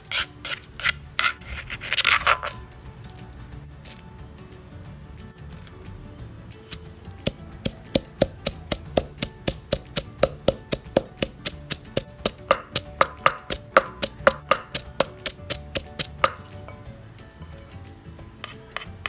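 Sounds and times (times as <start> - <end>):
pestle pounding in clay mortar: 7.2 - 16.8.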